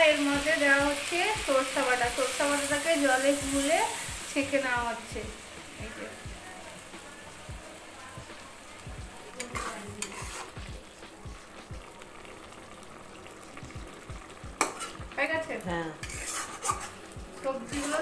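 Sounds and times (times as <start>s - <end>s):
curry sizzling in a wok: 0.0s - 18.0s
metal spatula scraping pan: 9.4s - 10.7s, 14.6s - 15.0s, 15.9s - 18.0s.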